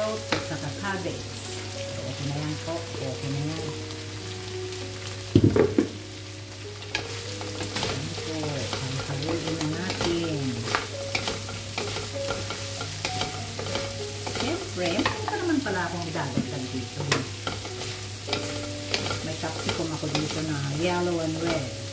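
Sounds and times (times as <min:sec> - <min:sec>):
food sizzling in a pan: 0:00.0 - 0:21.9
spatula scraping a pan: 0:06.8 - 0:21.9.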